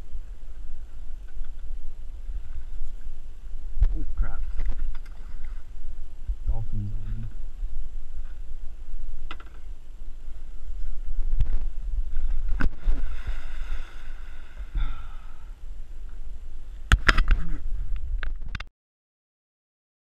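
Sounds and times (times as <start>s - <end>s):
wind rumble on microphone: 0.0s - 18.7s.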